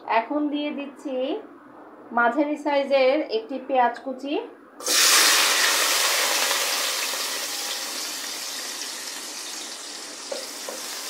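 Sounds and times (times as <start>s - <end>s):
onion sizzling in hot oil: 4.8s - 11.0s.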